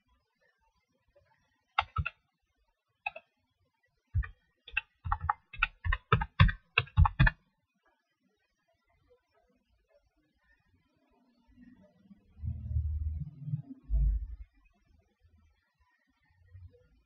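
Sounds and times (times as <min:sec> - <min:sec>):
computer keyboard typing: 0:01.8 - 0:02.1, 0:04.2 - 0:07.4.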